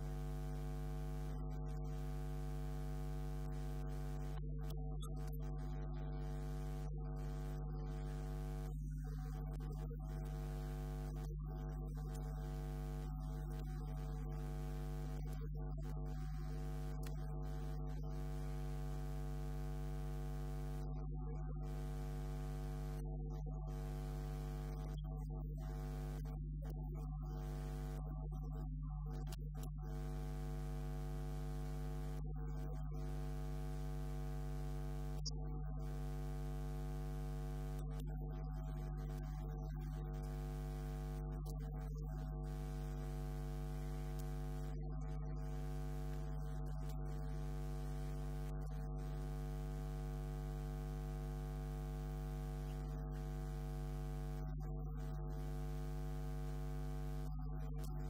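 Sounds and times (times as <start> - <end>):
electrical mains hum: 0.0 - 4.6.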